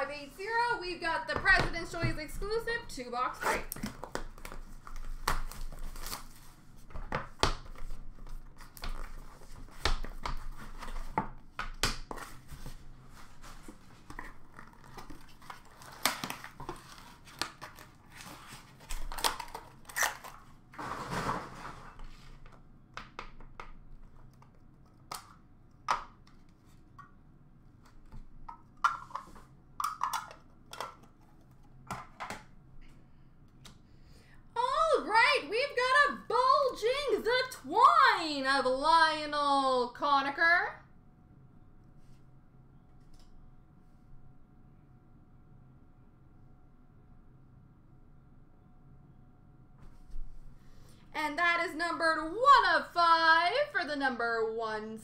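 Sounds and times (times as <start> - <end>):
packaging ripping and crinkling: 3.9 - 6.5, 14.2 - 20.8.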